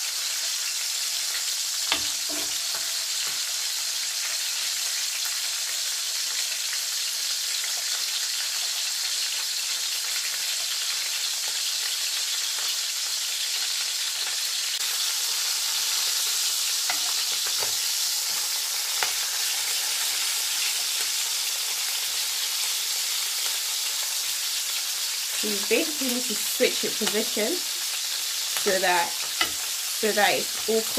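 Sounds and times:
fish sizzling in hot oil: 0.0 - 30.9
metal spatula scraping pan: 1.9 - 3.0, 29.2 - 30.9.

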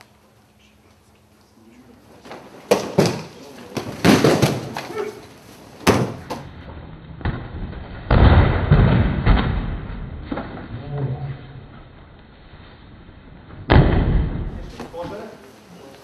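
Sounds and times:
bodies slapping onto mats: 2.2 - 5.1, 5.8 - 6.5.

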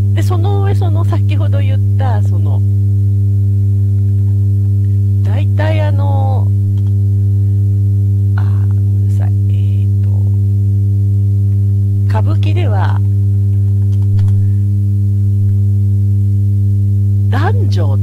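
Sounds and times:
loud low hum: 0.0 - 18.0
person talking: 0.1 - 2.6, 5.2 - 6.5, 8.4 - 10.4, 12.1 - 13.0, 17.3 - 18.0.

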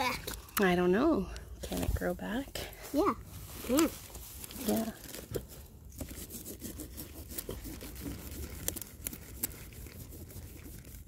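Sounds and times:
cabbage leaves rustling and scraping: 2.8 - 11.0.

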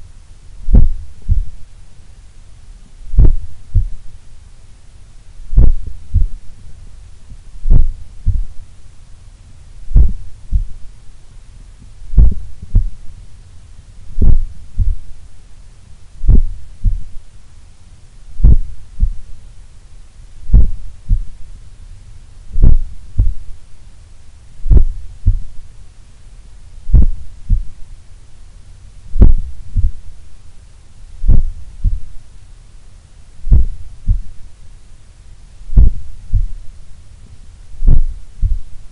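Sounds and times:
heartbeat through stethoscope: 0.7 - 1.6, 3.1 - 4.1, 5.5 - 6.5, 7.3 - 8.7, 9.9 - 10.9, 12.1 - 13.0, 14.1 - 15.2, 16.2 - 17.2, 18.4 - 19.4, 20.4 - 21.4, 22.5 - 23.5, 24.6 - 25.6, 26.9 - 27.8, 29.1 - 30.1, 31.2 - 32.2, 33.4 - 34.4, 35.7 - 36.6, 37.8 - 38.9.

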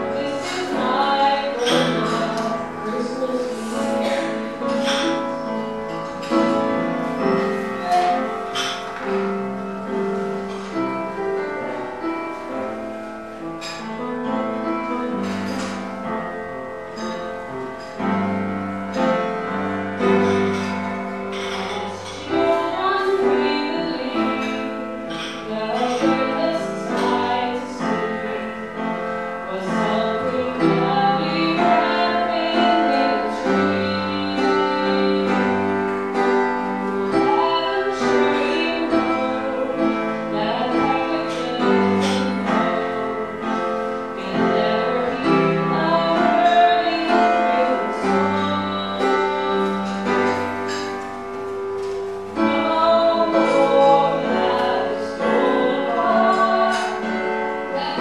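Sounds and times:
woman singing into a microphone: 0.0 - 9.6, 18.0 - 51.0, 52.3 - 58.0
piano accompaniment: 0.0 - 58.0.

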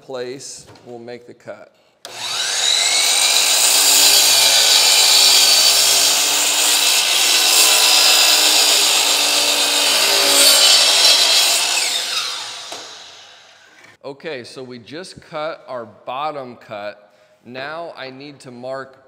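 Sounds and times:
miter saw cutting wood: 2.1 - 13.8.

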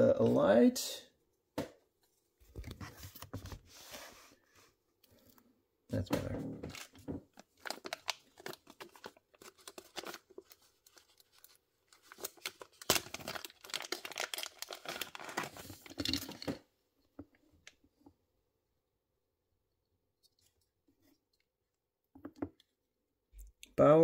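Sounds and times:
plastic bag crinkling and tearing: 6.7 - 16.6.

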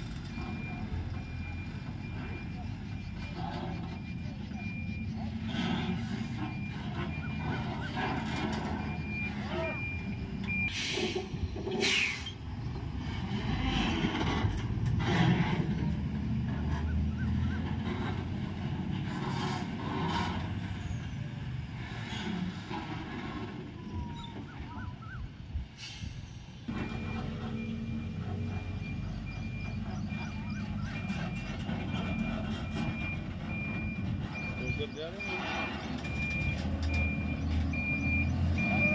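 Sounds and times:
truck diesel engine running: 26.7 - 38.9.

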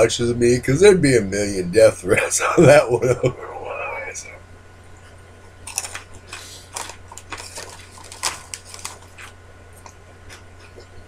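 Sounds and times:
low electrical hum: 0.0 - 11.0
snack bag crinkling: 5.6 - 10.4.

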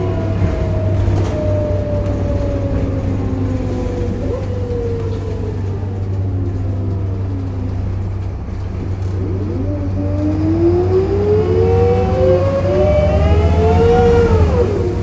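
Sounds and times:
bus engine accelerating: 0.0 - 15.0
groaning tone rising in pitch: 9.2 - 15.0.

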